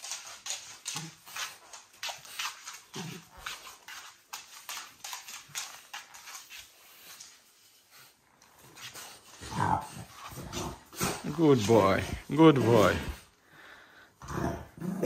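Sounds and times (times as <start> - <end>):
dog sniffing and snuffling: 0.0 - 13.8
dog grunt: 9.4 - 13.3, 14.2 - 15.0.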